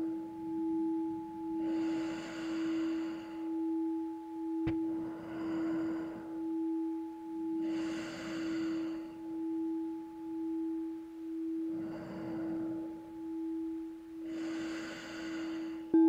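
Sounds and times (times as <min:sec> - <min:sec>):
singing bowl ringing: 0:00.0 - 0:16.0
person breathing through nose: 0:01.5 - 0:03.7, 0:04.8 - 0:06.8, 0:07.4 - 0:09.6, 0:11.4 - 0:13.6, 0:14.2 - 0:15.9.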